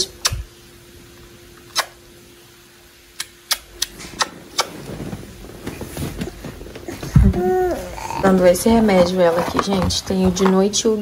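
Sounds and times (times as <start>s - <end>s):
faint steady hum: 0.0s - 11.0s
rustling of crib bedding: 3.9s - 11.0s.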